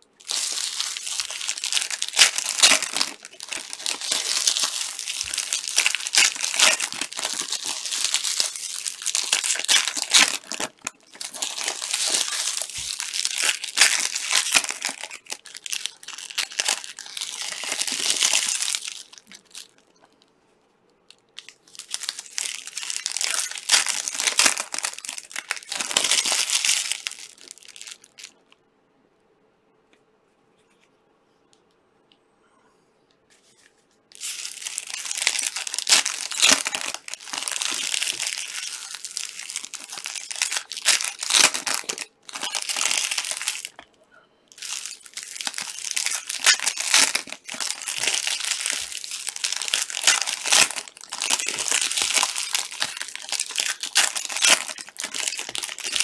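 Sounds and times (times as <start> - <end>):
card pack wrappers crinkling: 0.2 - 19.8, 21.4 - 28.4, 34.2 - 43.8, 44.5 - 56.0.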